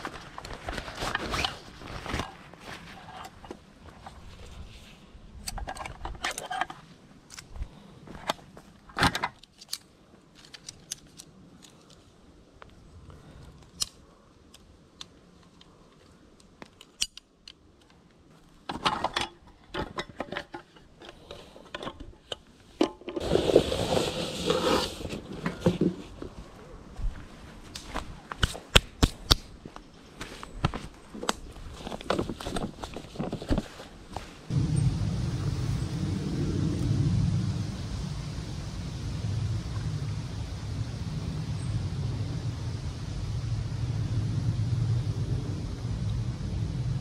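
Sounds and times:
plastic crinkling and rustling: 0.0 - 4.6, 31.6 - 34.5.

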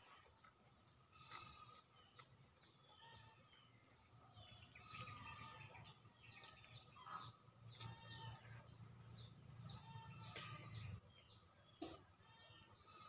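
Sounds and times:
faint birds chirping: 0.0 - 13.0.

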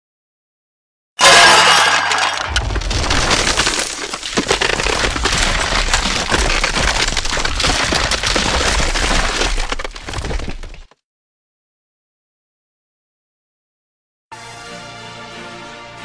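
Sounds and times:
glass shattering: 1.2 - 10.7.

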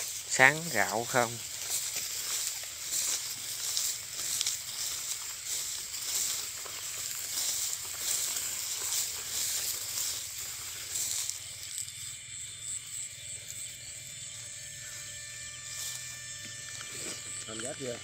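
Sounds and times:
footsteps rustling through grass: 0.0 - 17.4
high-pitched trilling: 14.2 - 18.0.

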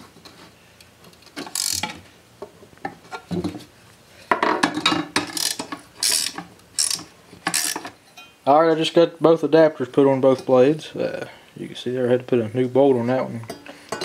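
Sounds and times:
ratchet wrench clicking: 1.5 - 1.8, 5.3 - 7.8.

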